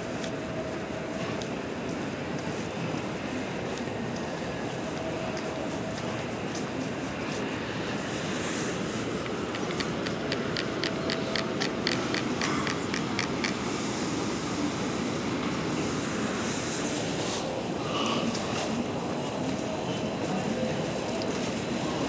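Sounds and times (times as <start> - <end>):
reverberant station hall hum: 0.0 - 22.0
quick ticking: 9.5 - 13.6.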